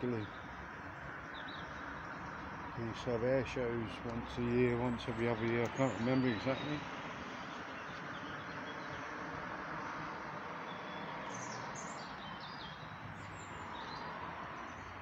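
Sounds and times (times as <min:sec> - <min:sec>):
birds chirping: 0:00.0 - 0:15.0
steady outdoor background hiss: 0:00.0 - 0:15.0.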